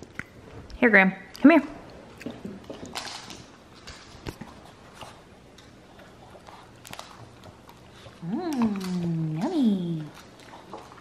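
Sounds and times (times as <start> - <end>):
dog claws clicking on wood floor: 2.2 - 4.5.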